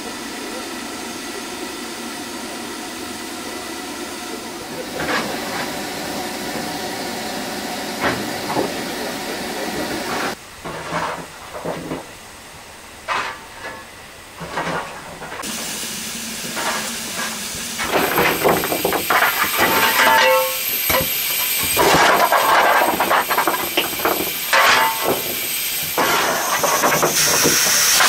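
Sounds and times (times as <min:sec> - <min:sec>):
steam hissing: 0:00.0 - 0:10.4, 0:12.0 - 0:28.0
metallic clattering of fire iron: 0:10.1 - 0:12.1, 0:13.0 - 0:28.0.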